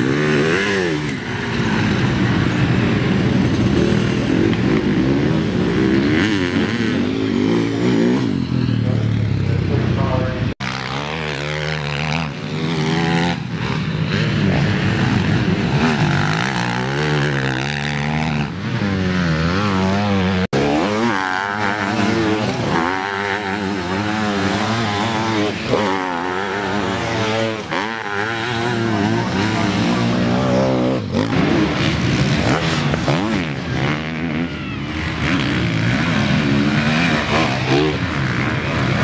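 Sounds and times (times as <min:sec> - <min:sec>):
motorcycle engines revving: 0:00.0 - 0:39.0
sidecar motorcycle engine: 0:00.0 - 0:39.0.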